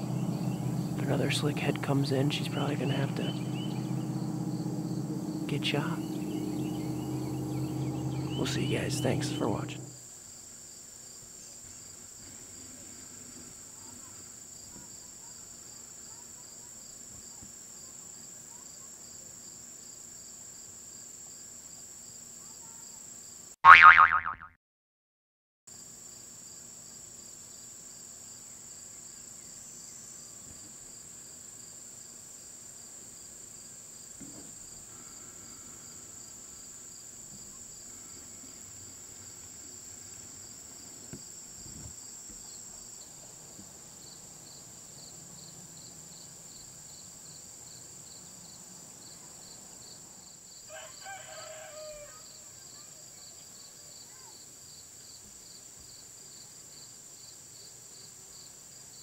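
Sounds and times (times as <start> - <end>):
pulsing insect chirp: 0.0 - 10.0
high insect trill: 0.0 - 12.2, 26.1 - 58.9.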